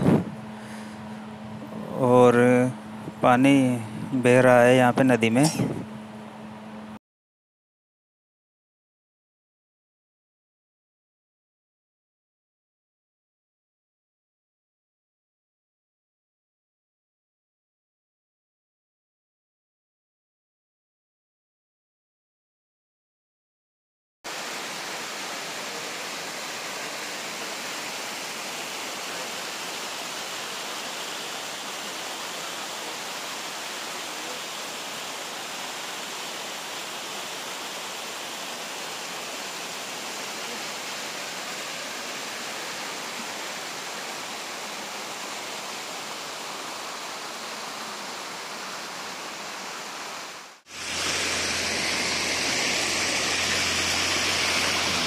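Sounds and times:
water rushing over weir: 0:24.3 - 0:55.0.

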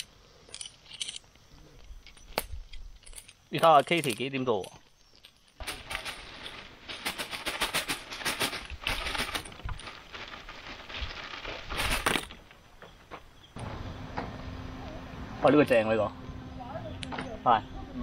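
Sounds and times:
charcoal fire crackling and popping: 0:08.7 - 0:12.6.

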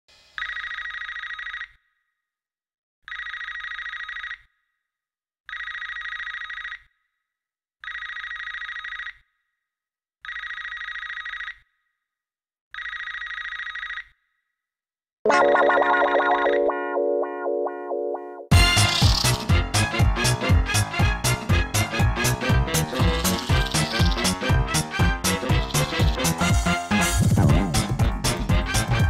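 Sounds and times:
telephone ringing: 0:15.3 - 0:18.5.

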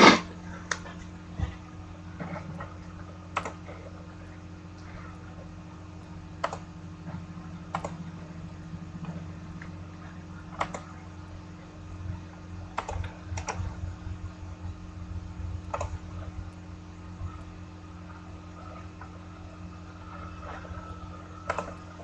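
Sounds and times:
steady low hum: 0:00.0 - 0:22.0
computer key clicks: 0:03.4 - 0:03.6, 0:21.5 - 0:21.7.

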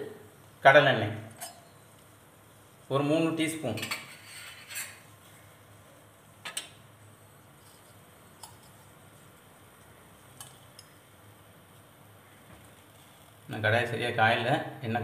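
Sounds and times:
kitchen utensils clinking: 0:03.8 - 0:05.0.

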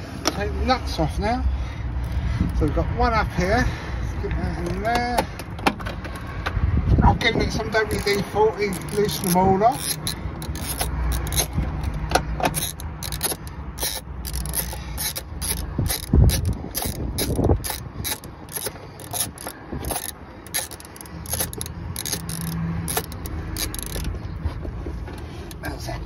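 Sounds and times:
socket ratchet clicking: 0:02.0 - 0:02.6, 0:07.7 - 0:24.2.

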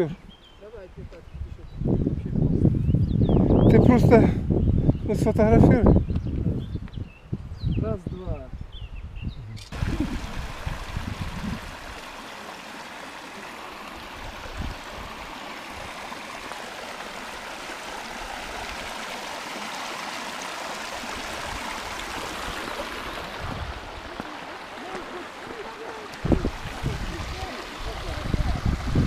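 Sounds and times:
stream rushing over stones: 0:09.7 - 0:29.0.

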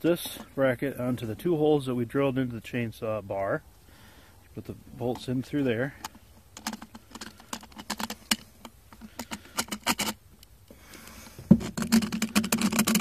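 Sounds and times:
metal bolts and chain rattling: 0:05.2 - 0:10.2, 0:11.6 - 0:13.0.

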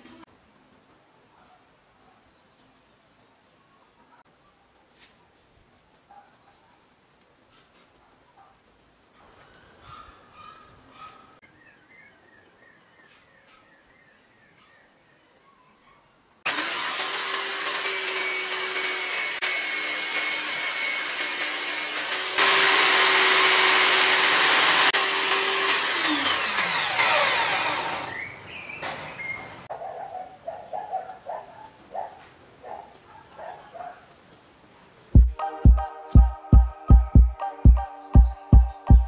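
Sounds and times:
buffing wheel motor hum: 0:16.5 - 0:28.2
motor winding down: 0:16.5 - 0:28.2.

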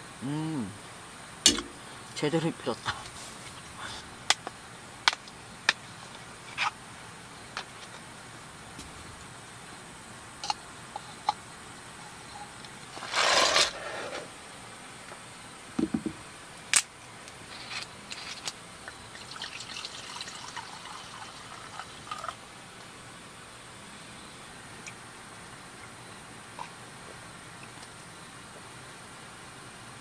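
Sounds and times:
sharp tap: 0:01.5 - 0:01.7.

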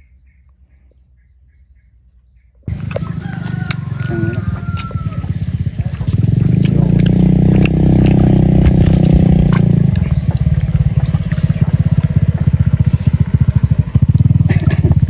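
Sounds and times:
birds chirping: 0:00.0 - 0:15.0
small engine running: 0:02.7 - 0:15.0.

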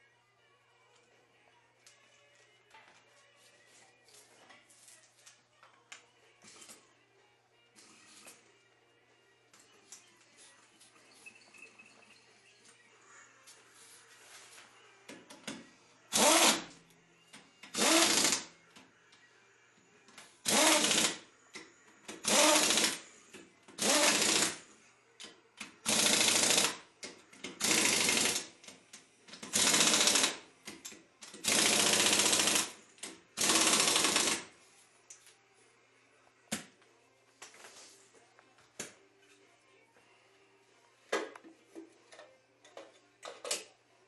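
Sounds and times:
pneumatic impact wrench hammering: 0:16.1 - 0:16.7, 0:17.7 - 0:18.5, 0:20.4 - 0:21.2, 0:22.2 - 0:23.0, 0:23.8 - 0:24.6, 0:25.8 - 0:26.8, 0:27.6 - 0:28.5, 0:29.4 - 0:30.4, 0:31.4 - 0:32.8, 0:33.4 - 0:34.4.

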